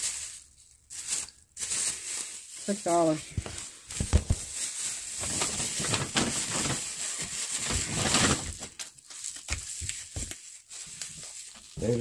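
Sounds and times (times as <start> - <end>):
paper bag rustling: 0.0 - 12.0
plastic packages handled: 0.0 - 12.0.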